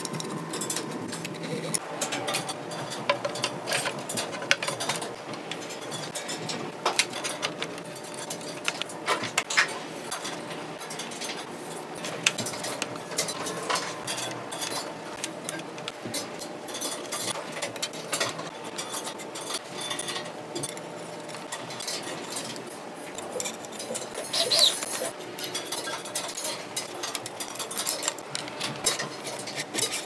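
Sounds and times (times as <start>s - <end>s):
small bicycle parts clicking: 23.2s - 30.0s.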